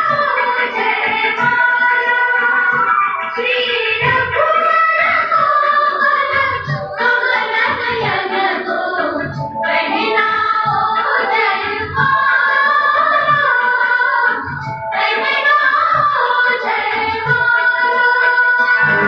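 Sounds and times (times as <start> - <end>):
person singing: 15.0 - 19.0
low drum beat: 18.8 - 19.0.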